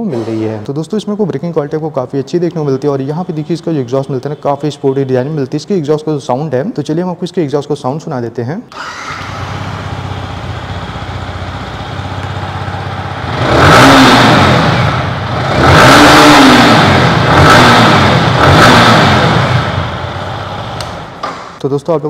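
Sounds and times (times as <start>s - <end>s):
motorcycle engine idling and revving: 8.8s - 21.2s.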